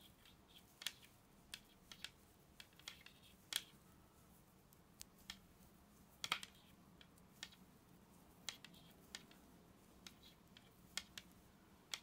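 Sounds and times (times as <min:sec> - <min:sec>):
knitting needles clicking: 0:00.0 - 0:12.0.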